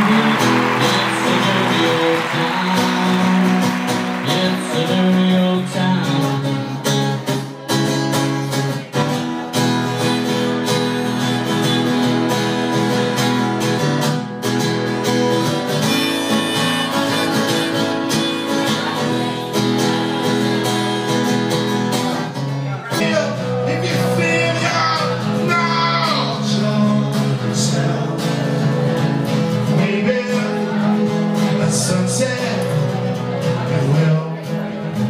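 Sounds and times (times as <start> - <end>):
man singing: 0.0 - 7.6, 22.9 - 35.0
acoustic guitar strummed: 0.0 - 35.0.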